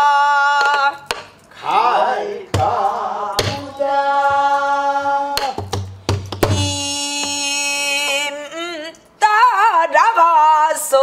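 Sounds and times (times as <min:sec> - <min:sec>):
person singing long held notes: 0:06.4 - 0:09.0.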